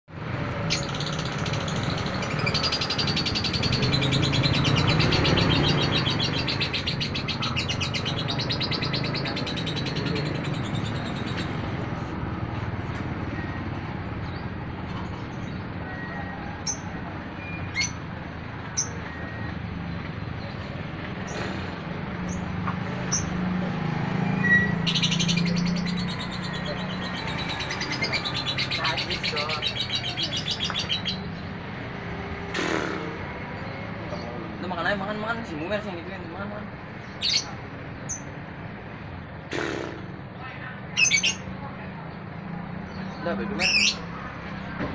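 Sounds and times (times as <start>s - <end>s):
lovebird chirping rapidly: 0.7s - 11.8s, 24.4s - 31.4s, 41.0s - 41.4s, 43.6s - 44.0s.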